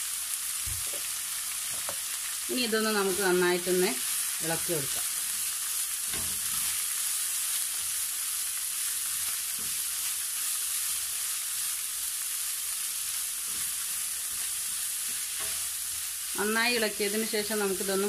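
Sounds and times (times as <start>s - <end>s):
leaves sizzling in a frying pan: 0.0s - 18.0s
spatula scraping a pan: 4.9s - 8.0s, 8.8s - 11.7s, 13.2s - 16.1s.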